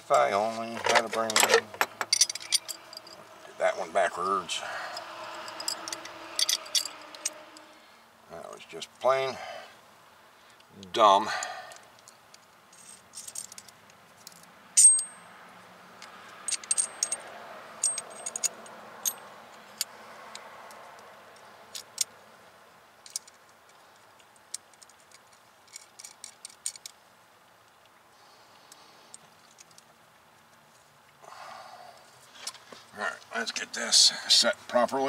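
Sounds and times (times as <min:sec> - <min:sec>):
metal tool parts clicking: 0:00.8 - 0:03.2, 0:04.9 - 0:07.6, 0:16.4 - 0:17.2, 0:17.8 - 0:19.2, 0:23.0 - 0:23.4, 0:24.5 - 0:27.0.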